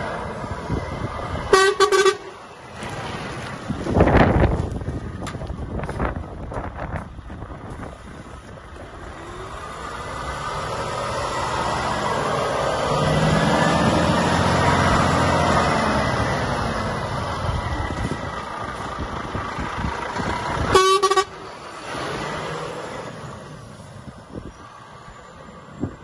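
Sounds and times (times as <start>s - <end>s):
diesel truck driving past: 0.0s - 26.0s
truck horn toot: 1.5s - 2.4s, 20.6s - 21.6s.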